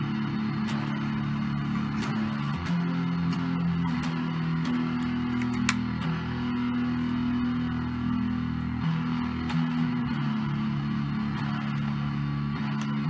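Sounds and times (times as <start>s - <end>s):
electric guitar played slowly: 0.0s - 13.0s
string and pick clicks: 0.5s - 6.6s, 8.7s - 10.2s, 11.3s - 13.0s.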